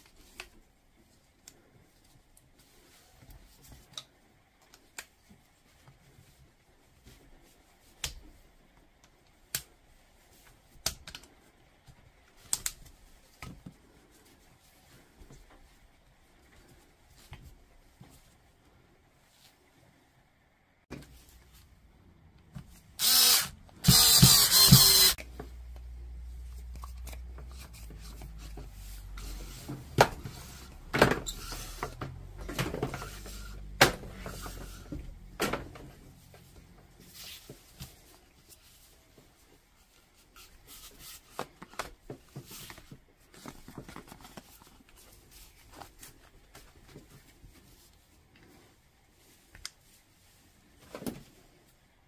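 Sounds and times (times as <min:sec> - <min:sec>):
power tool running: 0:23.0 - 0:25.2.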